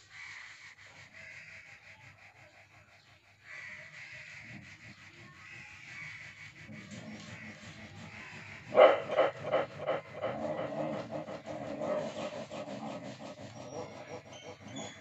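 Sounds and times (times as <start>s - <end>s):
dog barking: 8.6s - 15.0s.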